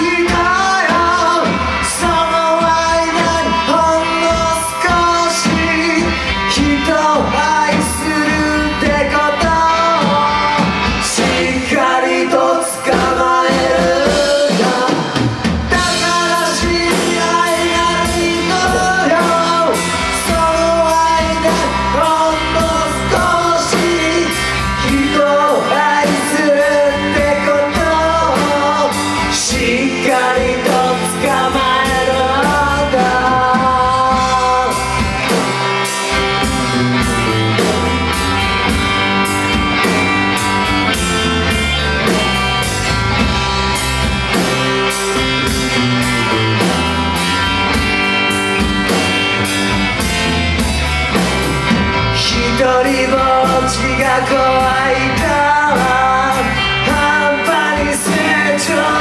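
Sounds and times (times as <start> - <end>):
man singing: 0.0 - 38.8, 51.7 - 59.0
bass guitar: 0.0 - 59.0
drum kit: 0.0 - 59.0
electric guitar: 0.0 - 59.0.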